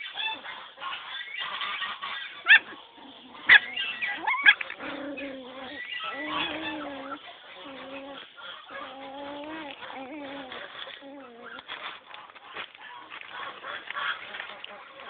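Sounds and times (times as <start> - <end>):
puppies yelping: 0.0 - 15.0.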